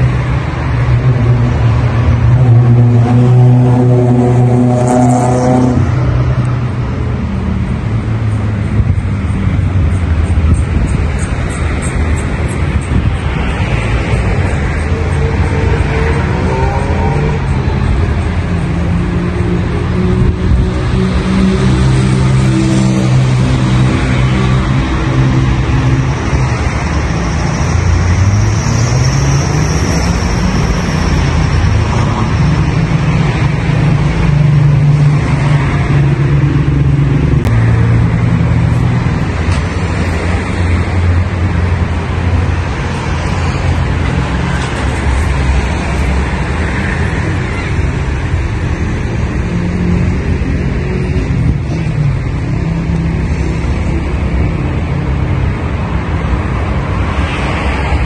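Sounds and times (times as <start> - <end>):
cars driving past: 0.0 - 58.0.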